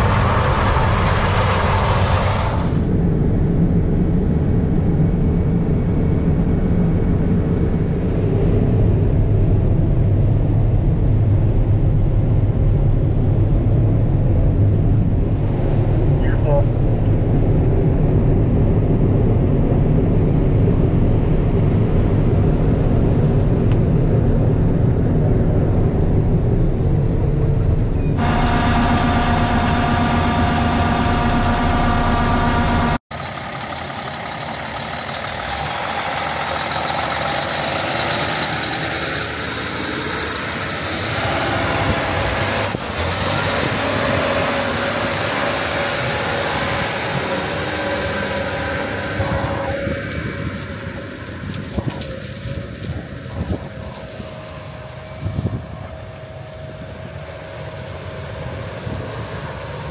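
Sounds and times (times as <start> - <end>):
heavy machinery engine rumble: 0.0 - 59.9
whine with overtones: 22.8 - 38.2
hissy machine noise: 28.2 - 51.3.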